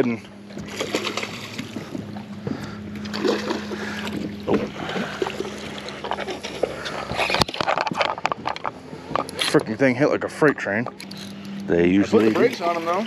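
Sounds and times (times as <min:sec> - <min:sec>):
boat motor hum: 0:00.0 - 0:13.0
fish splashing at surface: 0:00.6 - 0:08.1.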